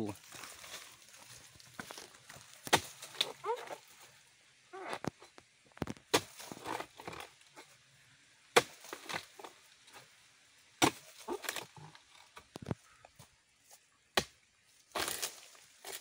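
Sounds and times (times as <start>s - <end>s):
rustling fronds: 0.0s - 5.2s
chisel chopping woody stalks: 1.8s - 3.8s, 5.9s - 7.2s, 8.5s - 9.5s, 10.8s - 11.7s, 14.2s - 16.0s.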